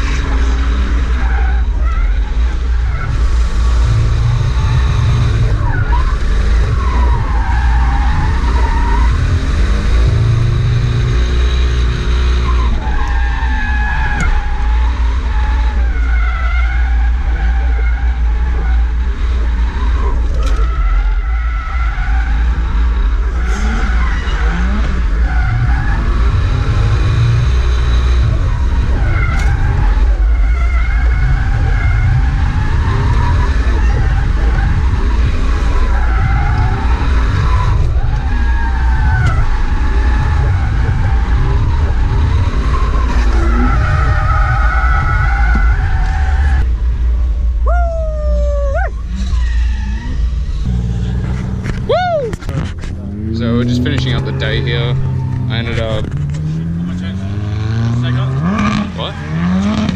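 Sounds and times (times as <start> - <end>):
car engine revving: 0.0 - 59.9
tyres squealing: 47.7 - 59.9.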